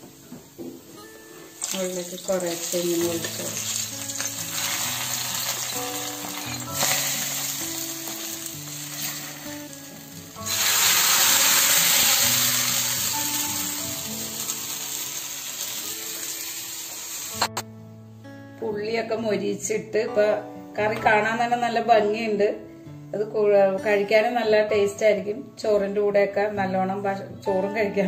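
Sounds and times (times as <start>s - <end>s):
soft background music: 0.0s - 28.0s
hot oil sizzling: 1.5s - 17.6s.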